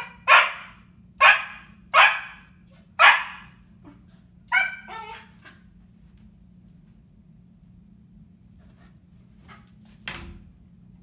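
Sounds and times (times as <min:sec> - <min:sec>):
husky yelps: 0:00.0 - 0:02.4, 0:03.0 - 0:03.5, 0:04.5 - 0:05.3
puppy barking: 0:00.0 - 0:03.6, 0:04.5 - 0:05.3.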